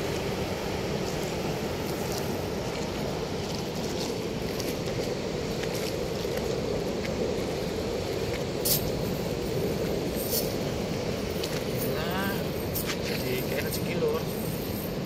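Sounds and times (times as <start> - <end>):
water rushing through sluice gate: 0.0 - 15.0.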